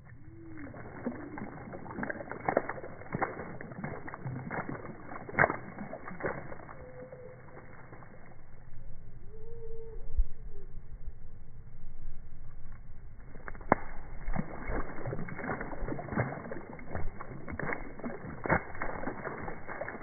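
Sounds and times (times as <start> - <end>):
low drawn-out bird calls: 0.0 - 1.8, 6.4 - 11.8
bird splashing in water: 0.0 - 8.5, 13.2 - 20.0.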